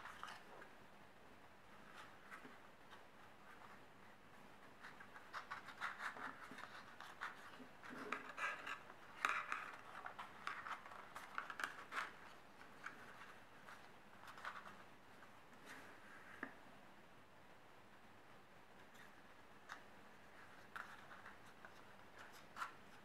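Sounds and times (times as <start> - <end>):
paper rustling and crackling: 4.8 - 14.9.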